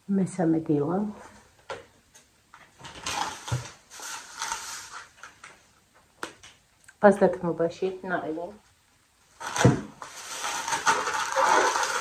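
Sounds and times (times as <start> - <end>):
plastic bag rustling: 2.6 - 5.6, 9.3 - 12.0.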